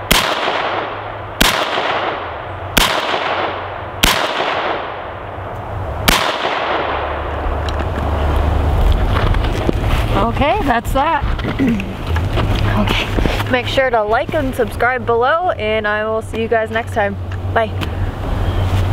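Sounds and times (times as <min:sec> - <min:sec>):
rifle shots with echo: 0:00.0 - 0:05.2, 0:06.0 - 0:07.3
wind rumble on microphone: 0:05.2 - 0:18.9.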